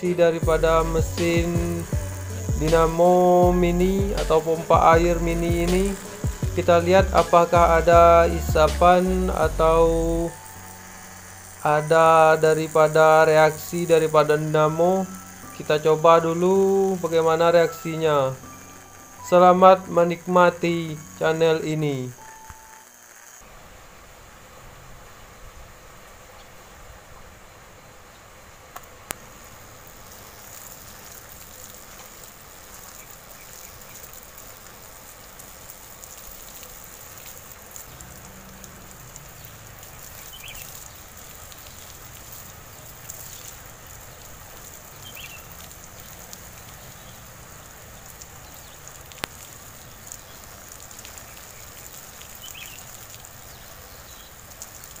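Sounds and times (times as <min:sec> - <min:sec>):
water jet hissing: 0:00.0 - 0:55.0
small motor pump running: 0:00.4 - 0:08.7, 0:09.5 - 0:16.9.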